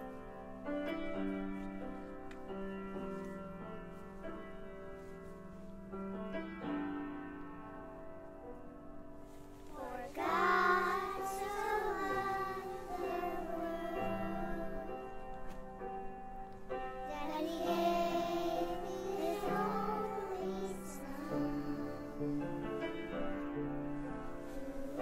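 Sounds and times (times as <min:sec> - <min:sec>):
children singing: 0:09.7 - 0:15.2, 0:17.1 - 0:22.6.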